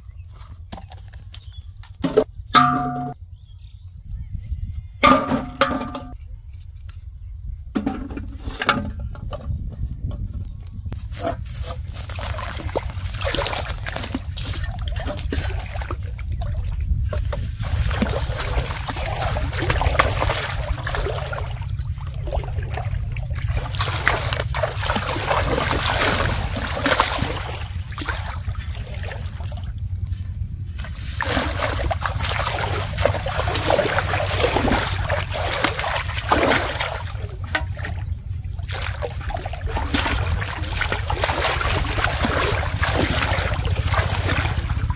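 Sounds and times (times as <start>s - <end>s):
steady low rumble: 0.0s - 44.9s
water splashing and sloshing: 5.0s - 6.2s, 10.9s - 44.9s.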